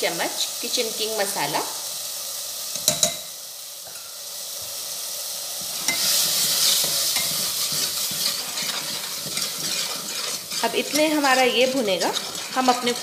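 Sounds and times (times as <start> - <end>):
masala sizzling in pot: 0.0 - 13.0
steel ladle stirring and scraping: 5.6 - 13.0.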